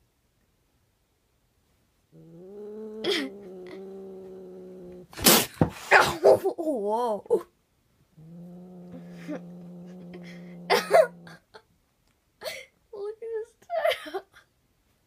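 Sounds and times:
cat growling low: 0:02.1 - 0:05.3, 0:08.1 - 0:11.6
cat yowling: 0:02.2 - 0:05.1.

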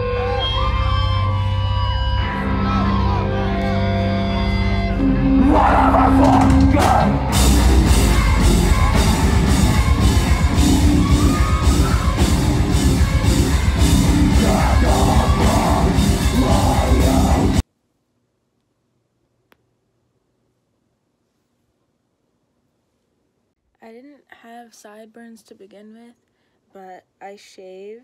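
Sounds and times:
live rock band playing: 0:00.0 - 0:17.6
drums: 0:04.6 - 0:17.6
vocals: 0:04.8 - 0:07.5, 0:14.0 - 0:17.6, 0:23.8 - 0:28.0.

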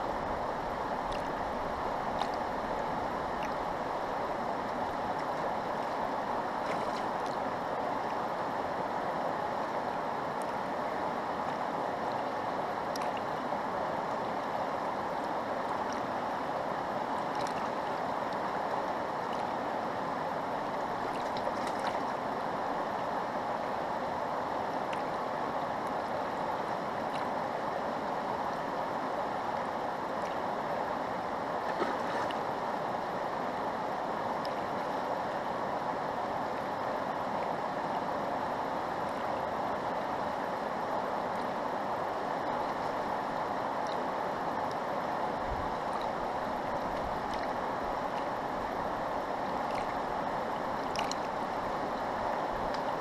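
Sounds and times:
river water rushing: 0:00.0 - 0:53.0.

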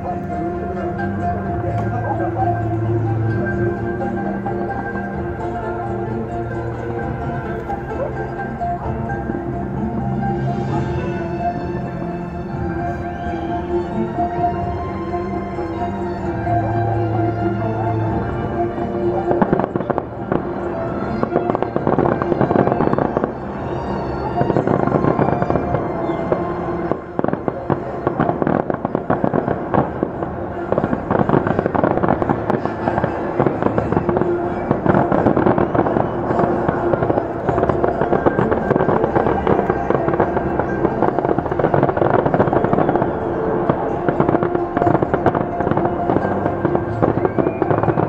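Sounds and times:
fireworks crackling and popping: 0:00.0 - 0:09.4, 0:15.8 - 0:48.0
music playing: 0:00.0 - 0:48.0.

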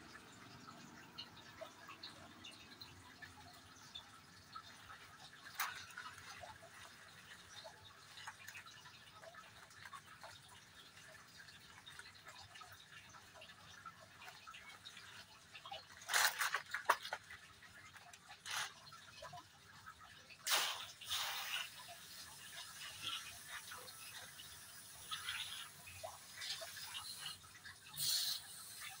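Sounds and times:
soil crackling on plastic: 0:00.3 - 0:29.0.

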